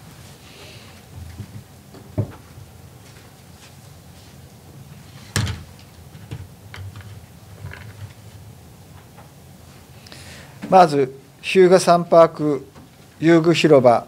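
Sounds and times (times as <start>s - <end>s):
board knocking on table: 2.2s - 2.4s.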